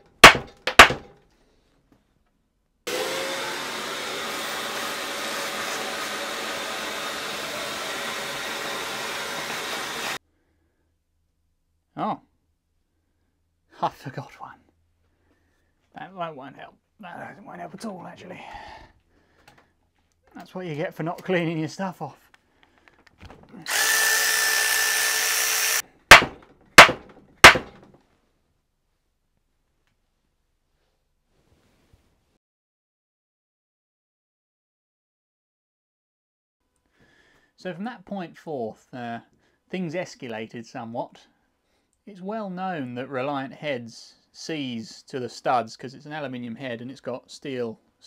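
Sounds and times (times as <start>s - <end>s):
electric blower rushing air: 2.9s - 10.2s
hammer blows on metal: 26.1s - 27.7s.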